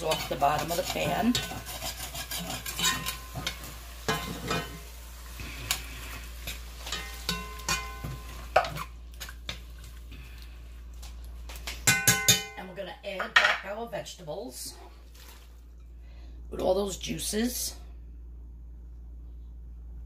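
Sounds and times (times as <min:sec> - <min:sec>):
metal spoon scraping pot: 0:00.0 - 0:04.8
food sizzling: 0:00.0 - 0:10.1
spoon clinking on pot: 0:06.9 - 0:08.8, 0:11.8 - 0:12.6.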